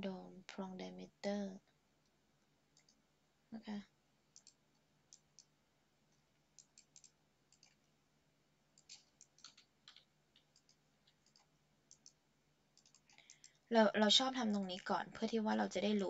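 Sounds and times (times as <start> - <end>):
computer mouse clicks: 2.7 - 3.0, 4.3 - 5.5, 6.1 - 7.9, 8.8 - 13.6.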